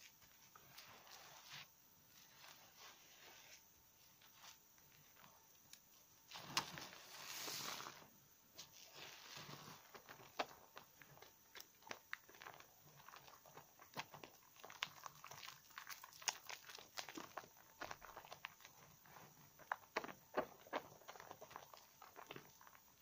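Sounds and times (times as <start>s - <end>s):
lather bubbles crackling and popping: 5.1s - 23.0s.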